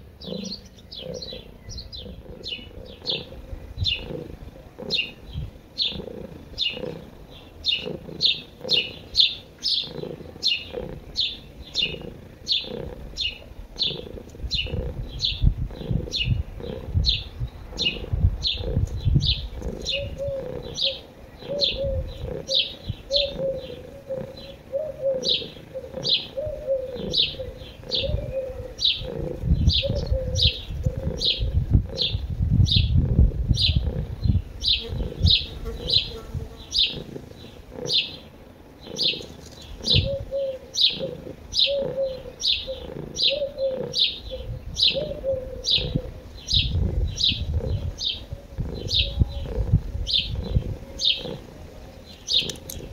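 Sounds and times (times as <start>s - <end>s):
dove cooing: 0.0s - 52.9s
small bird chirping: 0.1s - 52.9s.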